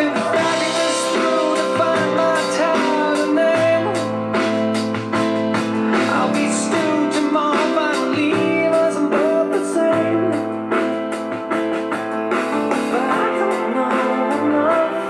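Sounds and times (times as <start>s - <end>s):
guitar-led song through speakers: 0.0s - 15.0s.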